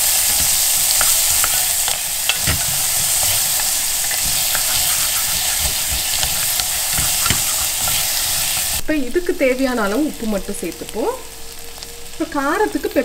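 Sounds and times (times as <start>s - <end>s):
wooden spoon scraping a pan: 0.0s - 8.8s
onion sizzling in oil: 0.0s - 13.0s.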